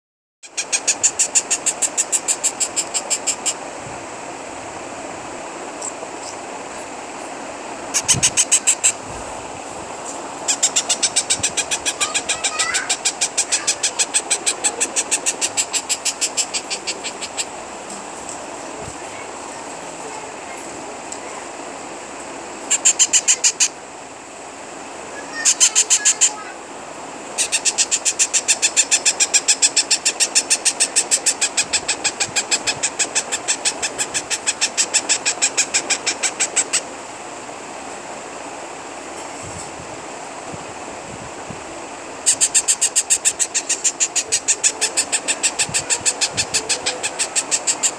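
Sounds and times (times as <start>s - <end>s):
parrot chicks begging calls: 0.5s - 3.6s, 7.9s - 9.0s, 10.4s - 17.6s, 22.6s - 23.8s, 25.2s - 26.5s, 27.4s - 36.9s, 42.2s - 47.9s
steady background hiss: 0.5s - 47.9s.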